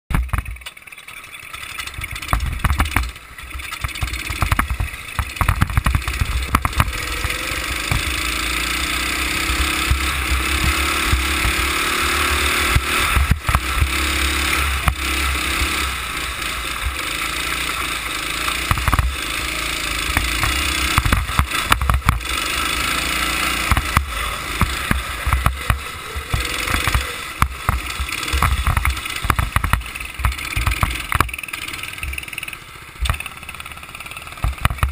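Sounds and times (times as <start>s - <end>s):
go-kart engine running: 0.1s - 34.9s.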